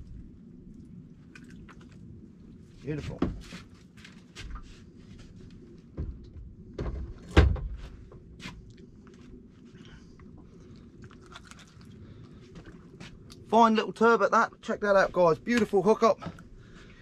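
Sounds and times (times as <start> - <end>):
dull thumps on a boat: 3.1 - 3.7, 5.9 - 8.3.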